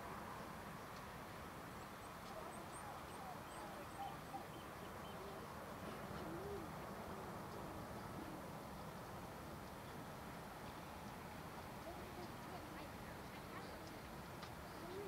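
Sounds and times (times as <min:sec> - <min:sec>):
faint background hiss: 0:00.0 - 0:15.0
birds chirping: 0:01.7 - 0:06.7.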